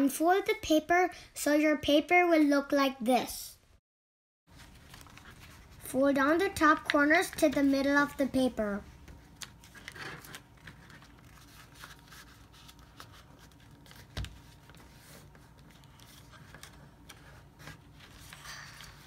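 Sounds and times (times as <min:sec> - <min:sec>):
paper rustling and crinkling: 0:04.5 - 0:05.9, 0:09.1 - 0:19.0.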